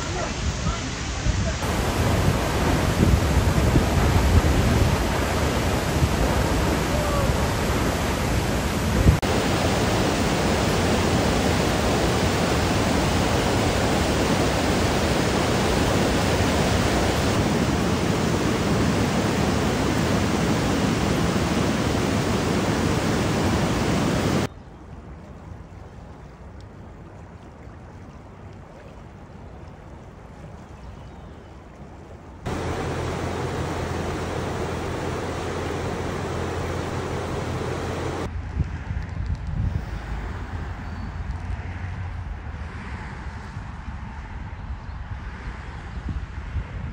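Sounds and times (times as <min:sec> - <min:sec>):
river rushing over stones: 0:00.0 - 0:24.5, 0:32.5 - 0:38.3
waterfall crashing: 0:00.0 - 0:24.5, 0:32.5 - 0:38.3
whitewater rapids: 0:00.0 - 0:24.5, 0:32.5 - 0:38.3.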